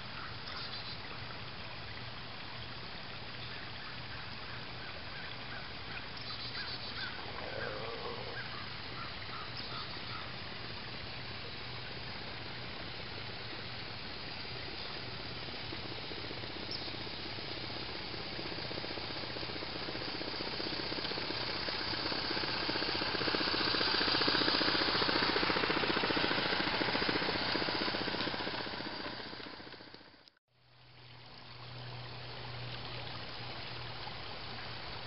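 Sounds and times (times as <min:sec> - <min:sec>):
steam locomotive chuffing and hissing: 0:10.4 - 0:30.0.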